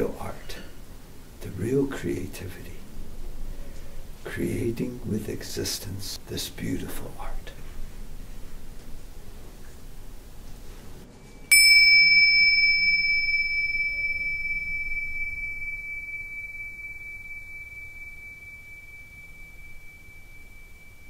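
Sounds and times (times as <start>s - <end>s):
small bell ringing: 11.5s - 21.0s.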